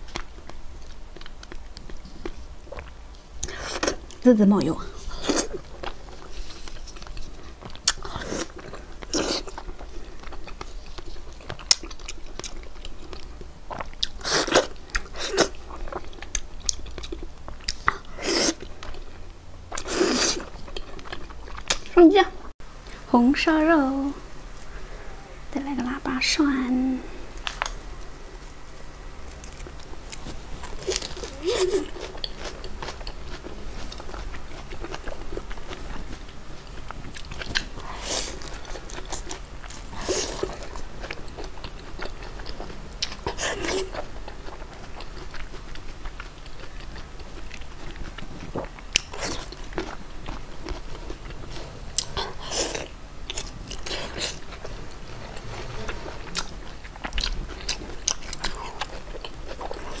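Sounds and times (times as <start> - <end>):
person chewing food: 0.0 - 4.2, 5.0 - 22.0, 29.2 - 60.0
crisp crunch: 29.2 - 60.0.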